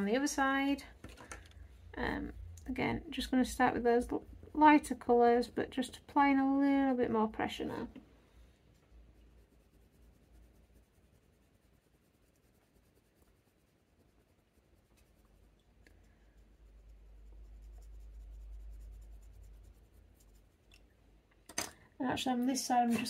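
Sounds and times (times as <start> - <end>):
pencil scratching on paper: 8.8 - 20.7.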